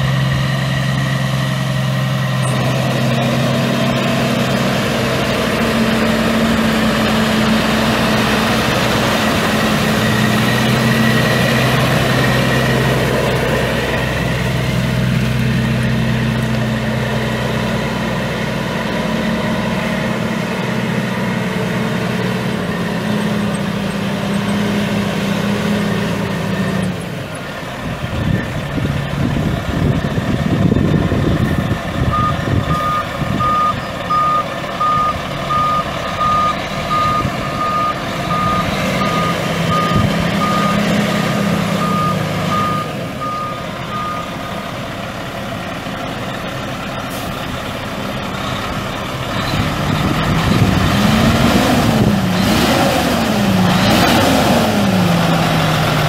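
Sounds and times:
diesel truck engine running: 0:00.0 - 0:56.0
backup alarm beeping: 0:32.1 - 0:40.9, 0:41.8 - 0:44.4.

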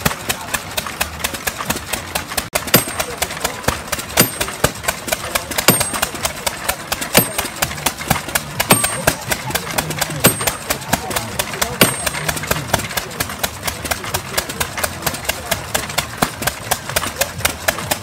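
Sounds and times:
stationary engine running: 0:00.0 - 0:18.0
hammer blows on metal: 0:02.6 - 0:05.0, 0:05.6 - 0:06.3, 0:06.9 - 0:11.0, 0:11.6 - 0:12.9.

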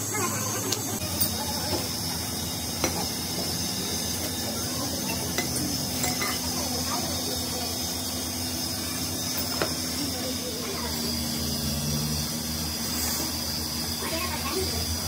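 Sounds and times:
steady low hum: 0:00.0 - 0:15.0
metallic clinks: 0:05.1 - 0:06.5.

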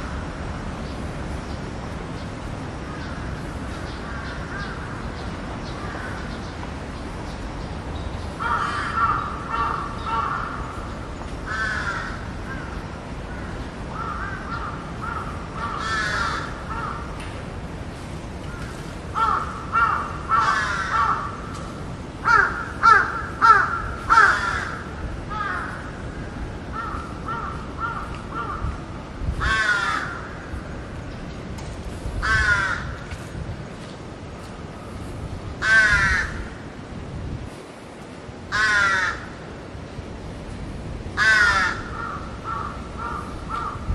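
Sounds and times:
birds calling: 0:00.8 - 0:17.2, 0:18.2 - 0:28.8.

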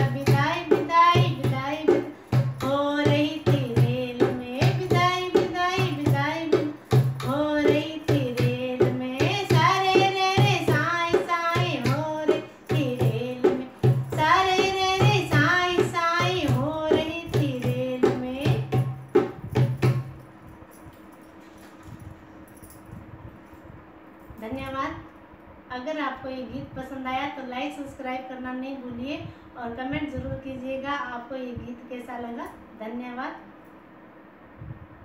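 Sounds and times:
woman singing: 0:00.0 - 0:18.9
hand drum beat: 0:00.0 - 0:20.2.

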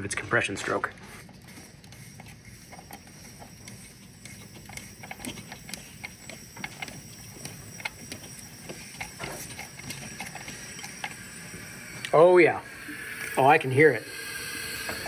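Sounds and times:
ratchet wrench clicking: 0:01.2 - 0:11.4.

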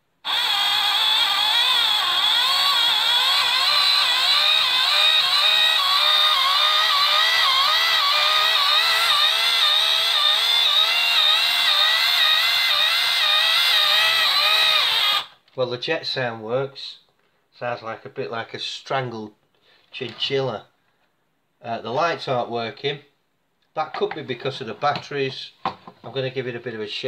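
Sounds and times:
toy warbling electro-mechanical whine: 0:00.2 - 0:15.3.

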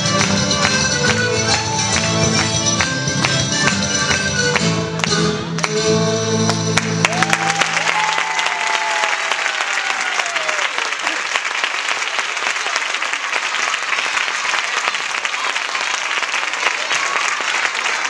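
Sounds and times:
audience applause: 0:06.8 - 0:18.0.

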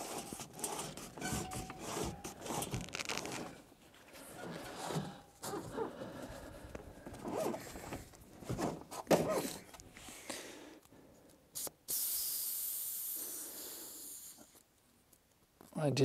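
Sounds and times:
floor pump strokes: 0:00.0 - 0:06.5
air hissing from valve: 0:11.6 - 0:14.5.

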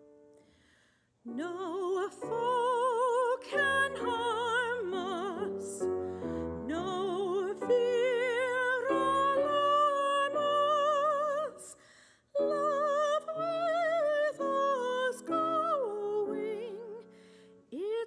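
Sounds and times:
woman singing classical style: 0:01.2 - 0:18.0
grand piano accompaniment: 0:01.3 - 0:11.7.

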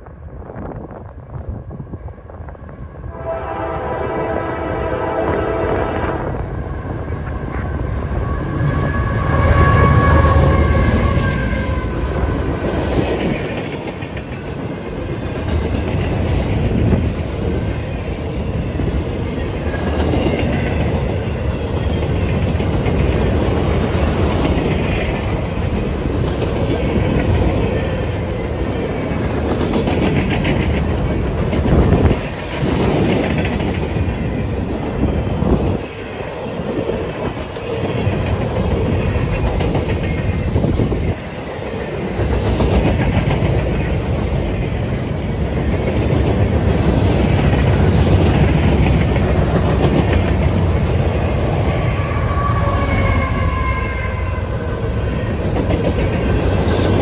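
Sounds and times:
train horn: 0:03.0 - 0:12.6, 0:51.6 - 0:55.1.

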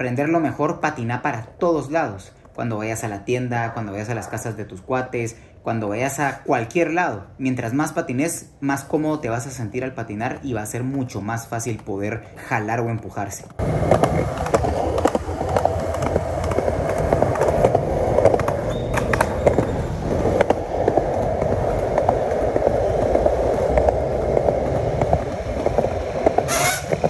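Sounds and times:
skateboard wheels rolling on concrete: 0:00.0 - 0:27.0
skateboard clicks and knocks: 0:10.1 - 0:27.0.

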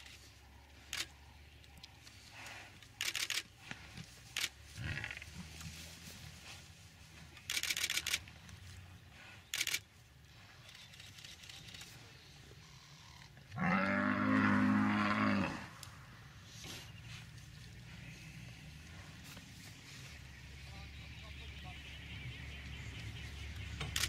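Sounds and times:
low drawn-out animal call: 0:12.5 - 0:16.0.

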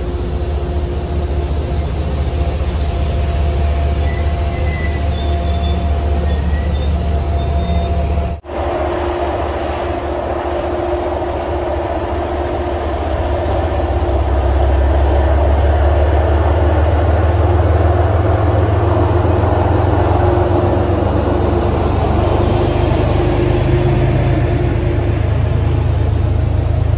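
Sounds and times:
low locomotive engine drone: 0:00.0 - 0:26.9
train coaches running on rails: 0:00.0 - 0:26.9.

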